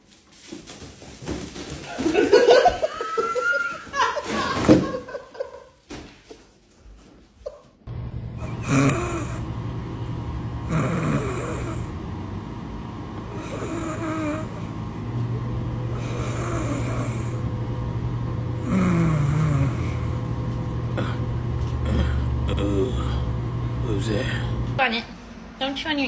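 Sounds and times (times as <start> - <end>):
steady low hum: 7.8 - 26.0
dog snoring: 8.4 - 9.5, 10.6 - 12.0, 13.3 - 14.7, 15.9 - 17.5, 18.6 - 20.2.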